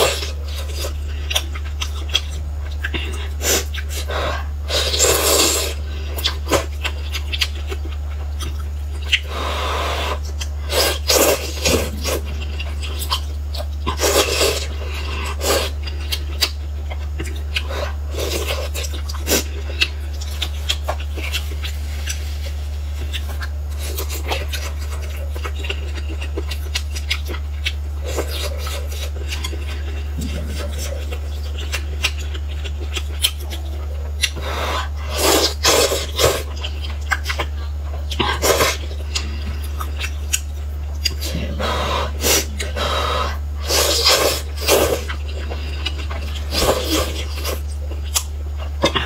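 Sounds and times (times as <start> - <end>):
slurping and chewing noodles: 0.0 - 49.0
steady low hum: 0.0 - 49.0.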